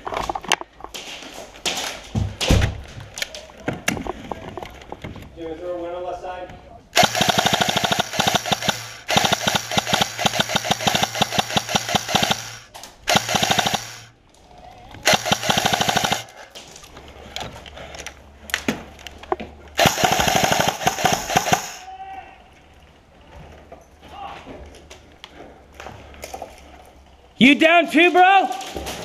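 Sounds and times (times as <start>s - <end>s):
distant scattered shots: 7.0s - 14.1s, 15.1s - 16.4s, 19.8s - 21.8s
airsoft guns firing bursts: 7.0s - 14.2s, 15.0s - 16.5s, 19.8s - 21.9s.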